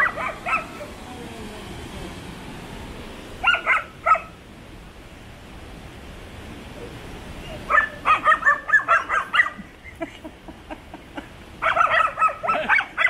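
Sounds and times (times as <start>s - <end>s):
puppies yapping: 0.0s - 0.8s, 3.4s - 4.3s, 7.7s - 9.7s, 11.6s - 13.0s.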